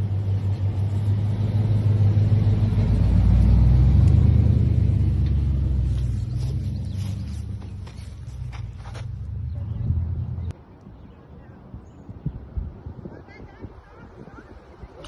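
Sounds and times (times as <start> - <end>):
vehicle engine passing: 0.0 - 10.6.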